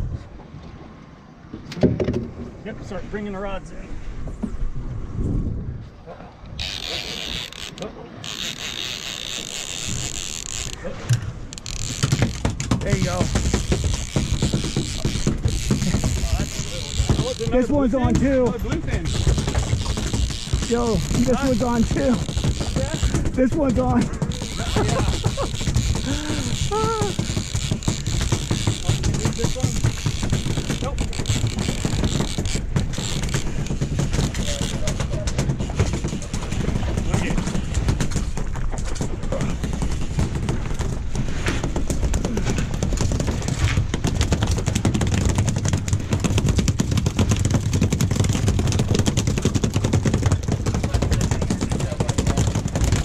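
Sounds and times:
wind on microphone: 0:03.8 - 0:07.6, 0:08.4 - 0:53.0
outboard motors running: 0:05.8 - 0:53.0
jet ski engine: 0:06.3 - 0:38.4.

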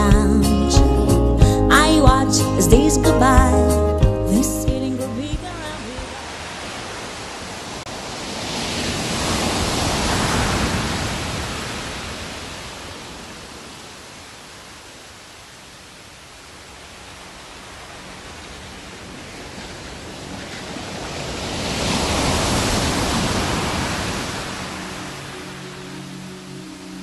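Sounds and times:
seaside rushing noise: 0:05.5 - 0:27.0.

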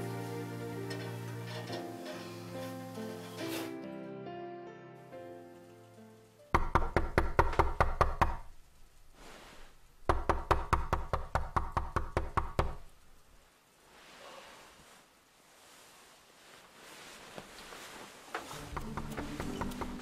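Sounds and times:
rapid loud knocking on door: 0:06.6 - 0:08.5, 0:10.1 - 0:12.8.

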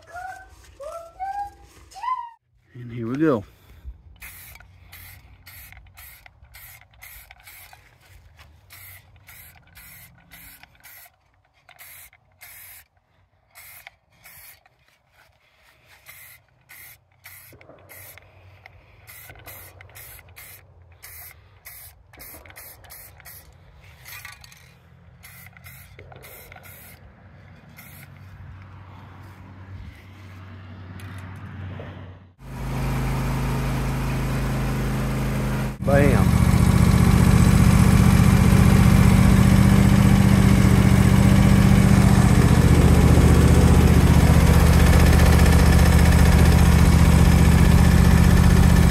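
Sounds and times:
spray paint hissing from aerosol can: 0:04.2 - 0:07.7, 0:11.8 - 0:12.8, 0:19.1 - 0:23.4.

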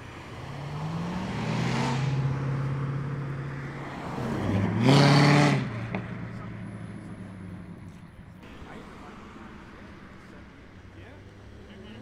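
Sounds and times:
sports car accelerating past: 0:00.2 - 0:07.9.

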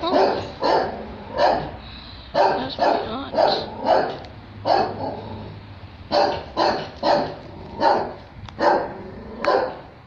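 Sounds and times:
small dog barking: 0:00.0 - 0:01.7, 0:02.3 - 0:05.3, 0:06.1 - 0:09.9.

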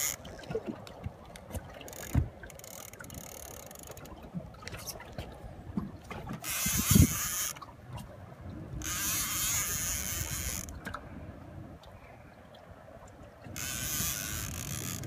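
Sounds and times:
fishing reel cranking: 0:00.0 - 0:00.2, 0:01.9 - 0:04.1, 0:06.4 - 0:07.6, 0:08.8 - 0:10.7, 0:13.6 - 0:15.0.

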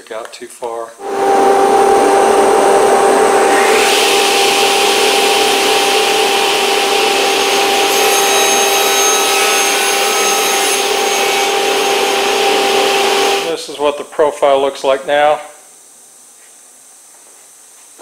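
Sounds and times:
panel saw cutting wood: 0:01.0 - 0:13.5.

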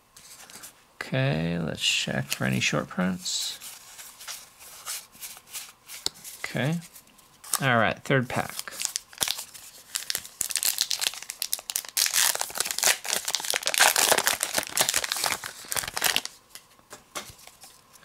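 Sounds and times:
wrapper tearing and crinkling: 0:08.4 - 0:16.4.

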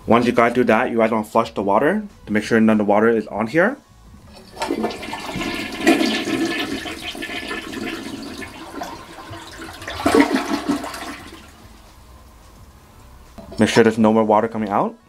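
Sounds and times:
toilet flushing: 0:00.0 - 0:01.1, 0:04.3 - 0:11.8
water swirling down bowl: 0:04.4 - 0:11.7.

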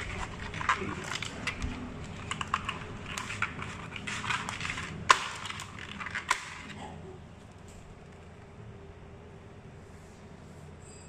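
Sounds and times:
crab legs scraping plastic tray: 0:00.0 - 0:06.8.

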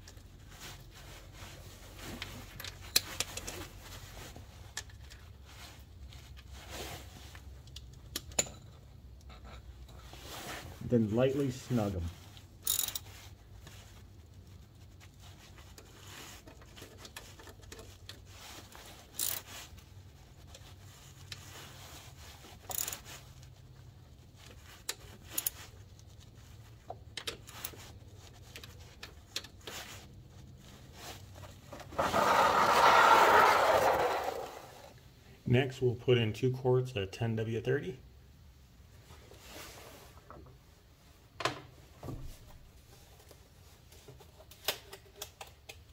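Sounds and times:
loud rubbing scraping noise: 0:31.8 - 0:34.9.

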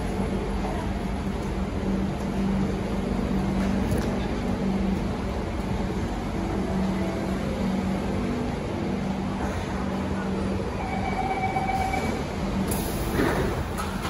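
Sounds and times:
train humming: 0:00.0 - 0:14.0
underground station noise: 0:00.0 - 0:14.0.

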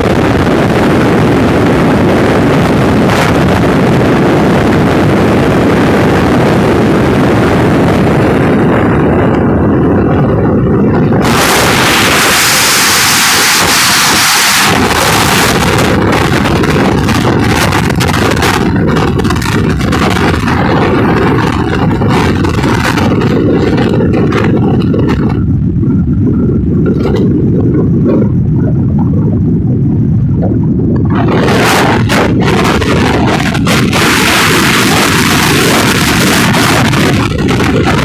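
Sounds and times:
vehicle road and engine noise: 0:00.0 - 0:38.0
wind rumble on microphone: 0:00.0 - 0:38.0.

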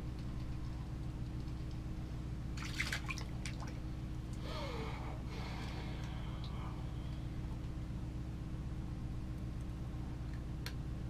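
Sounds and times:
steady low hum: 0:00.0 - 0:11.0
water splashing and dripping: 0:02.6 - 0:03.8.

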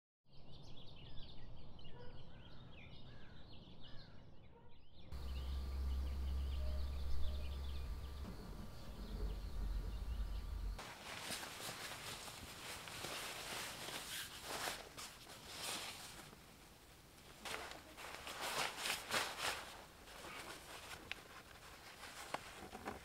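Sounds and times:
birds chirping: 0:05.1 - 0:10.8
wind rumble on microphone: 0:05.2 - 0:10.8.

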